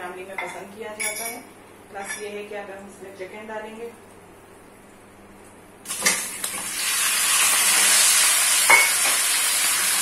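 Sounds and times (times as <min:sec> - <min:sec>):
chicken sizzling in hot oil: 0:05.9 - 0:10.0.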